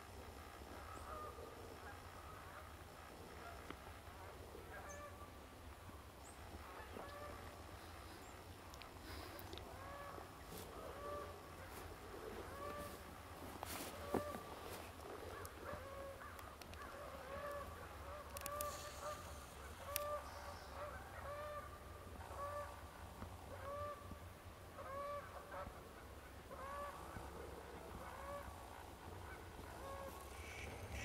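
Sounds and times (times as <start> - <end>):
faint bird call: 6.2 - 22.8, 26.5 - 31.0.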